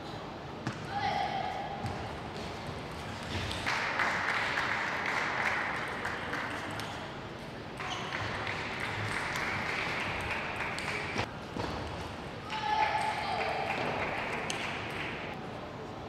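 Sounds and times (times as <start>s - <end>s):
audience applause: 3.6s - 6.7s, 8.0s - 11.3s, 13.3s - 15.3s.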